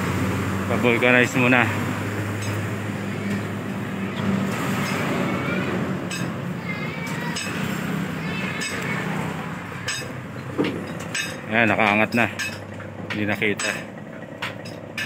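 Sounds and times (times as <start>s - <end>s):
diesel truck engine idling: 0.0s - 15.0s
sharp metal clinks: 7.2s - 7.7s, 9.8s - 10.2s.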